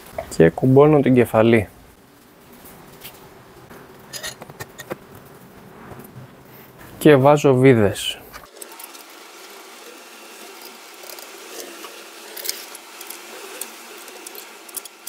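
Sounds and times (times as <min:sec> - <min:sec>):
background hiss: 0:00.0 - 0:15.0.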